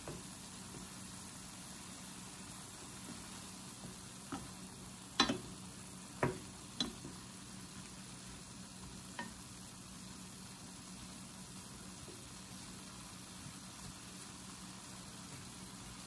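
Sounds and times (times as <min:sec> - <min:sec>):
meat sizzling in a pan: 0:00.0 - 0:16.0
wooden spoon knocking against pan: 0:04.3 - 0:04.6, 0:05.2 - 0:05.6, 0:06.2 - 0:07.2.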